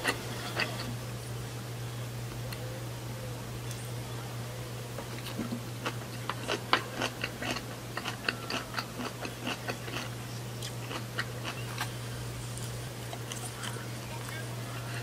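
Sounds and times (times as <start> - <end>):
crunchy chewing of raw vegetables: 5.1 - 15.0.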